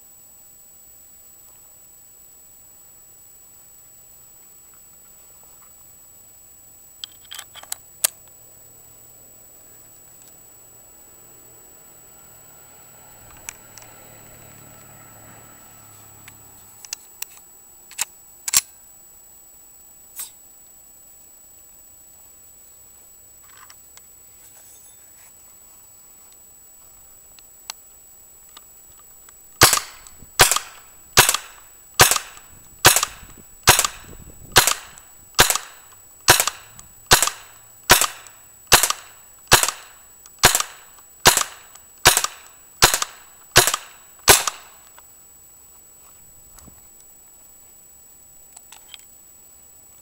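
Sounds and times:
paintball marker firing: 29.6 - 44.8.

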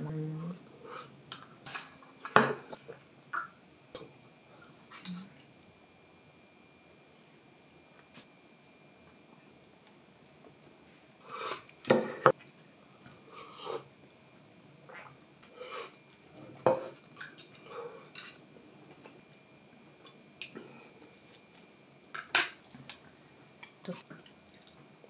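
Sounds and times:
eating sounds: 22.9 - 24.9.

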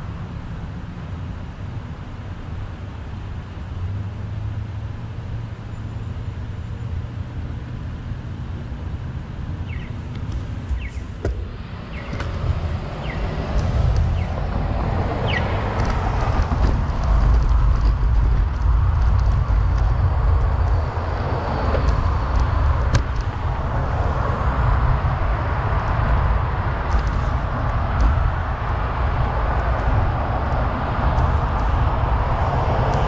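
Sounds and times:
bicycle road noise: 0.0 - 33.0
wind rumble on microphone: 7.5 - 33.0.

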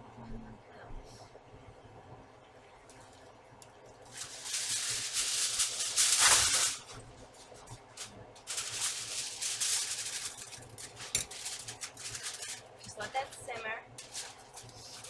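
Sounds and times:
paper package rustling: 4.0 - 15.0.

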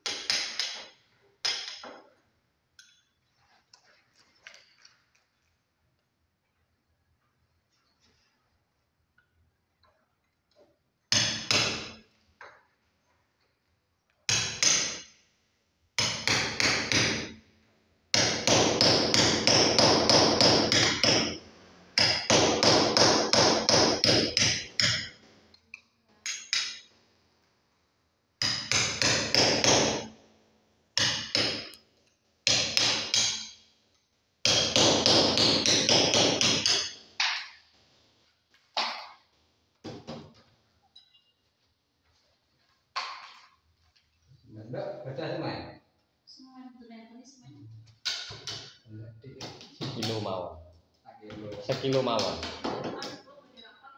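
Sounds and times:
hammer striking chisel into masonry: 14.3 - 15.1, 16.0 - 17.3, 18.1 - 21.4, 22.0 - 25.2, 28.4 - 30.1, 31.0 - 31.8, 32.5 - 33.6, 34.4 - 37.6.

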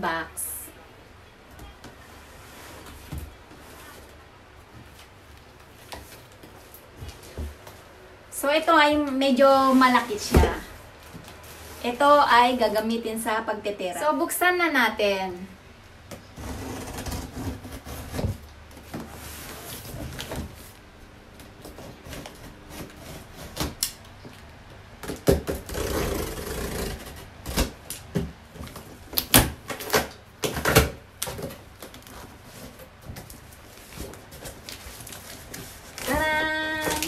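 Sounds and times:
box cutter slitting tape: 25.0 - 28.0.

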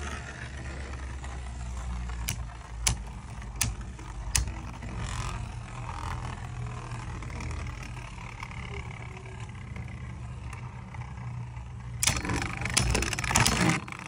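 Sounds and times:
spinning tops whirring: 0.0 - 14.0
steady low hum: 0.6 - 14.0
spinning tops clacking together: 2.1 - 5.6, 12.0 - 14.0.

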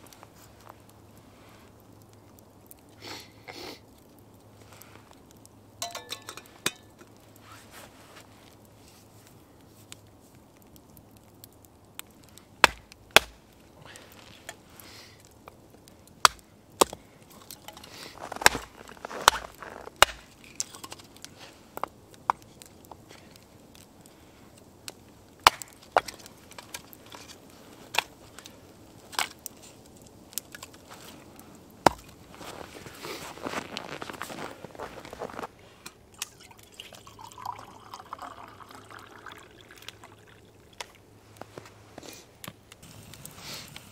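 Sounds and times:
hatchet chopping wood: 12.6 - 13.4, 16.2 - 17.0, 20.0 - 20.2, 31.8 - 32.1.

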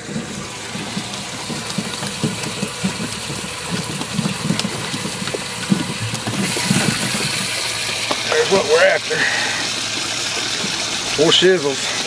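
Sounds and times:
soft irregular thumps: 0.0 - 8.3.

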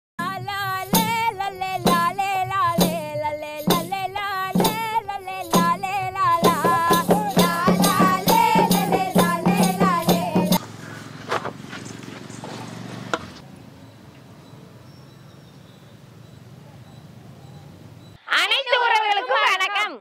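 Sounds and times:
vibrato melody over percussion: 0.2 - 10.6.

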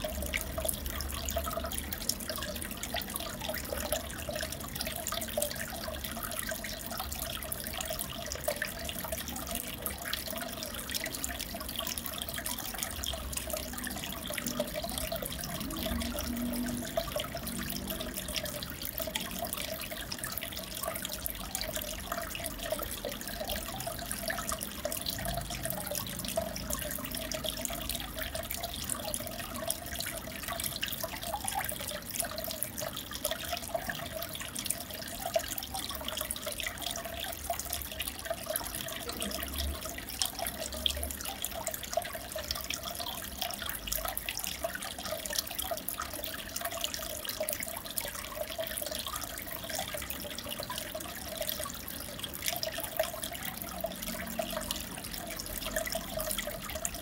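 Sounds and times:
aquarium water bubbling: 0.0 - 57.0.

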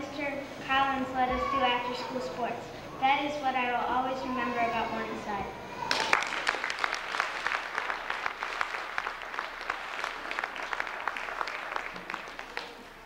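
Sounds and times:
audience applauding: 5.9 - 13.0.

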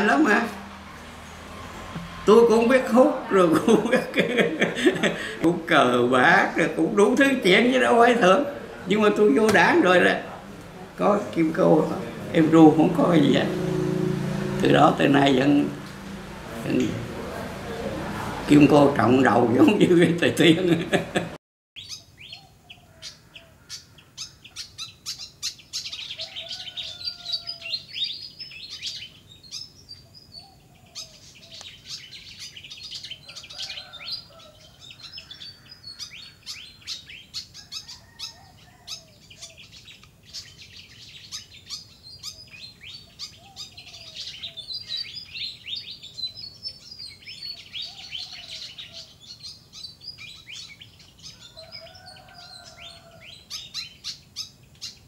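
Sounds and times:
small birds chirping: 21.8 - 55.0.

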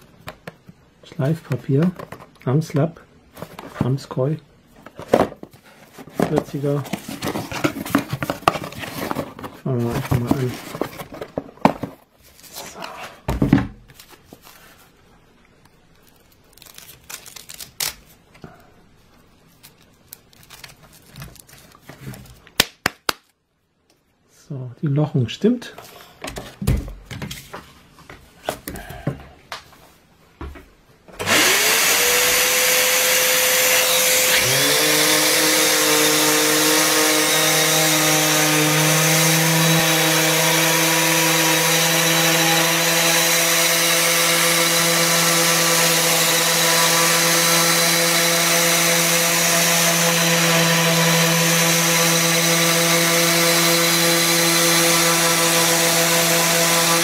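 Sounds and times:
orbital sander whining: 31.2 - 57.0.

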